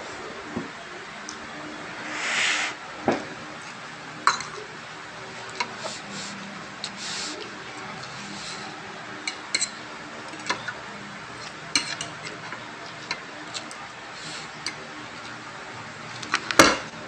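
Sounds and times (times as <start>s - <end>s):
cutlery clinking on a plate: 9.2s - 9.8s, 11.7s - 12.2s.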